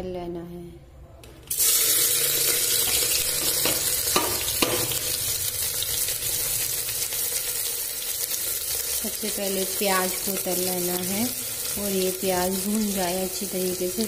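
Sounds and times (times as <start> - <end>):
onions sizzling in hot oil: 1.5 - 14.0.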